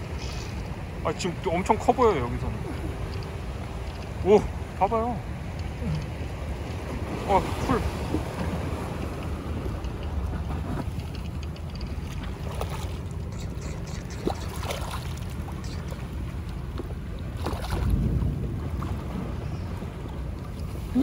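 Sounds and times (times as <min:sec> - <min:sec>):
water sloshing against a boat: 0:00.0 - 0:21.0
wind on microphone: 0:05.7 - 0:21.0.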